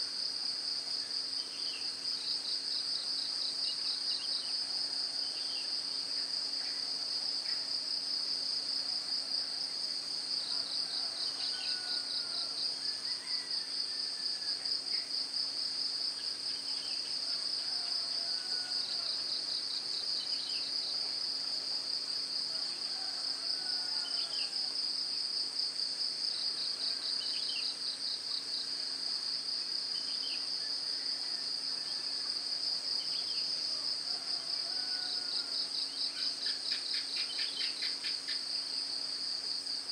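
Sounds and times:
insects trilling: 29.7s - 39.9s.

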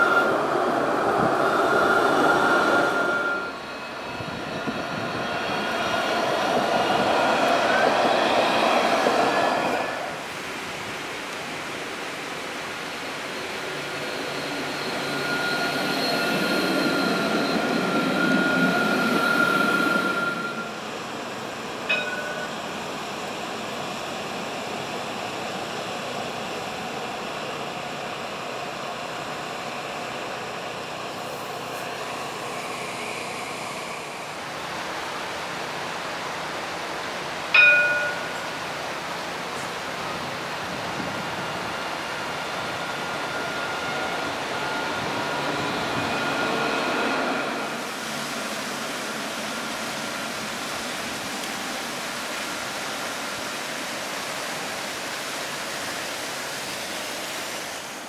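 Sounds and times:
street background noise: 0.0s - 53.0s
electric tram passing: 0.0s - 54.8s
tram high whine: 0.0s - 58.0s
short bell rings: 21.9s - 22.6s, 37.6s - 38.5s.

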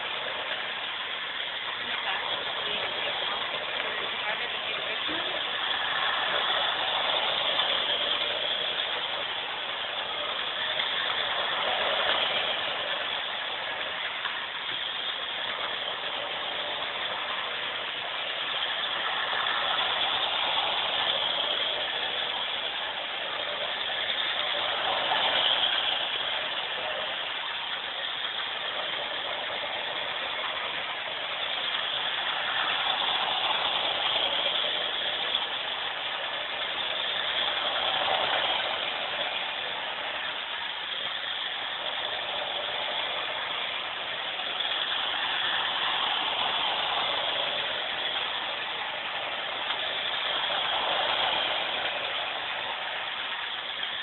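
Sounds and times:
model train running on track: 0.0s - 54.0s.

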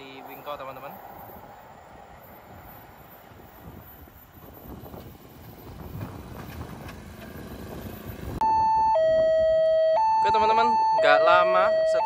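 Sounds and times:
car driving across: 0.0s - 8.4s
motorcycle engines passing: 4.7s - 8.4s.

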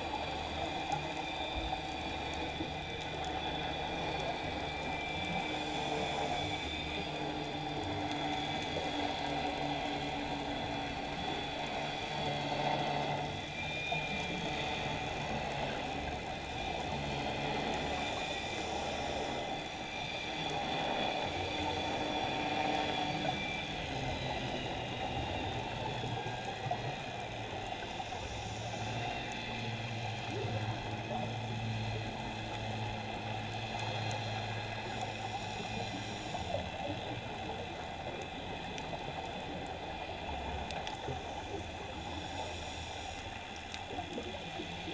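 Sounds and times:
underwater hiss and hum: 0.0s - 44.9s
scuba regulator breathing: 5.4s - 7.2s, 17.6s - 19.7s, 27.8s - 29.3s, 34.2s - 36.9s, 41.1s - 43.8s.

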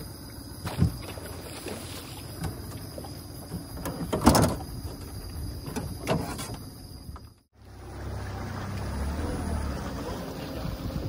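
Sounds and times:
knocks and scrapes on boat hull: 0.6s - 7.3s.

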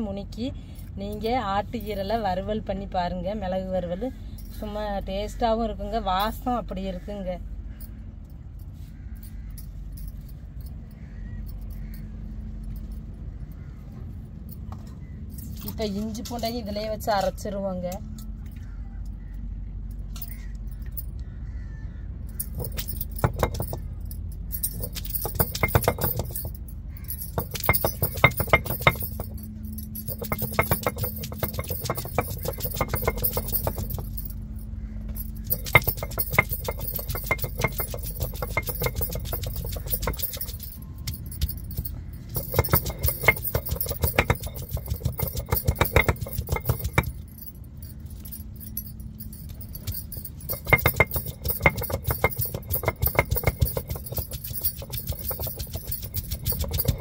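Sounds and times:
bangles jingling: 0.0s - 2.7s, 4.0s - 5.4s, 8.6s - 13.3s, 15.3s - 17.5s, 19.9s - 21.2s, 22.3s - 57.0s
stone roller grating on grinding stone: 24.6s - 34.4s, 35.2s - 47.1s, 49.5s - 57.0s.

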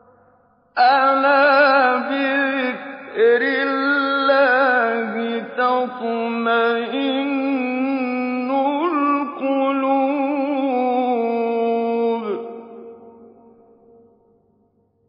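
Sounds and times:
man reciting melodically: 0.8s - 13.3s.

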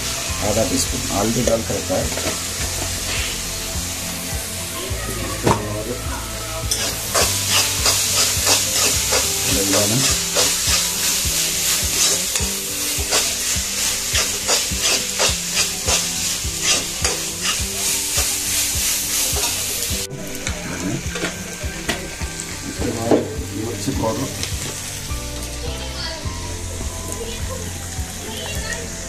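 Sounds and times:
onions sizzling in oil: 0.0s - 29.0s
metal spoon scraping a pan: 6.7s - 19.7s.

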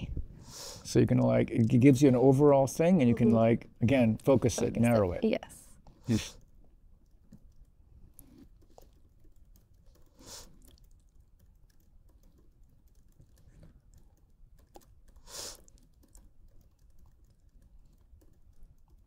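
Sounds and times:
keyboard typing clicks: 6.4s - 19.0s.

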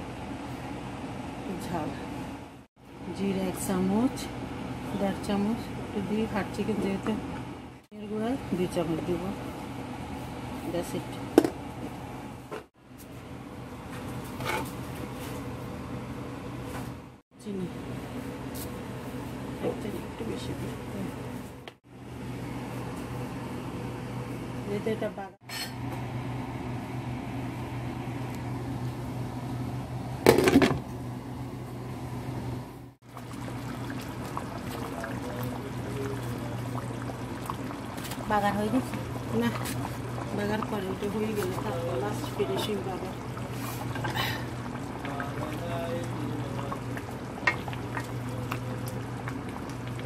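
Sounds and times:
kitchen fan humming: 0.0s - 50.0s.

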